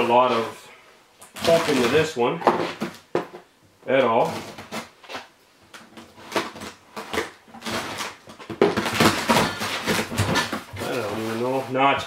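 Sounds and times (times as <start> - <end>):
packing tape ripping: 1.2 - 2.1, 4.3 - 11.2
cardboard flaps rustling: 1.3 - 3.4, 5.9 - 12.0.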